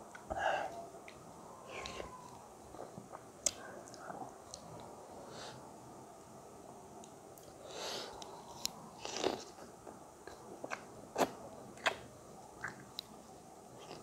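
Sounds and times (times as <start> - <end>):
wet chewing and mouth smacks: 10.3 - 12.0, 12.6 - 13.1.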